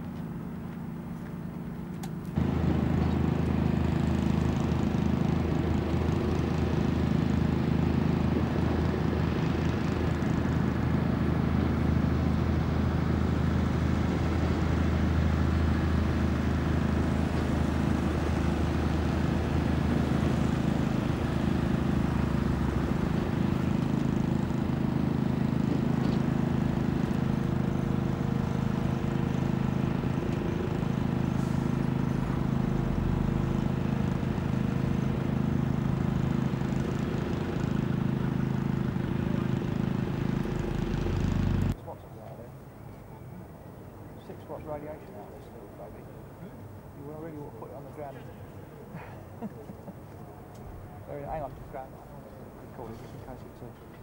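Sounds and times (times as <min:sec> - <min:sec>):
low mechanical drone: 0:00.0 - 0:41.8.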